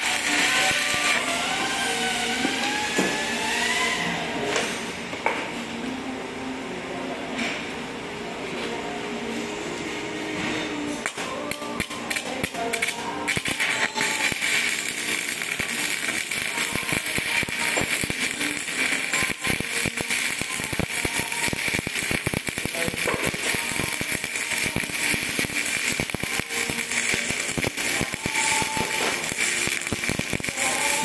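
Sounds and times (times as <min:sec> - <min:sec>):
welding arc crackling and popping: 0:00.0 - 0:03.8, 0:11.0 - 0:31.0.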